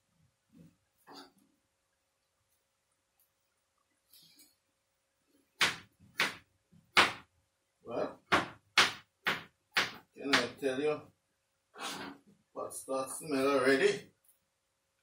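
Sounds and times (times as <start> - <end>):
knife chopping on cutting board: 5.6 - 7.2, 8.3 - 10.6.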